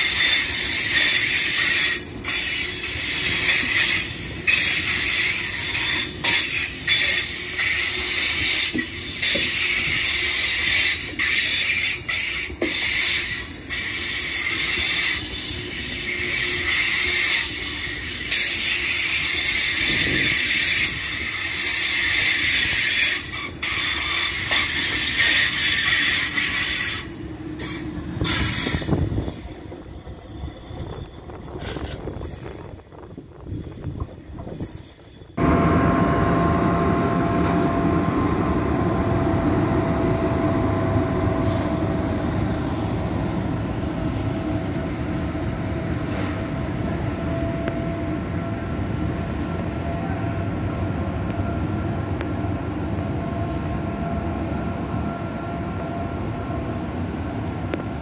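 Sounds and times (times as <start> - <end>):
train high hiss: 0.0 - 29.7, 31.4 - 32.6
train wheels rumbling on rails: 0.0 - 58.0.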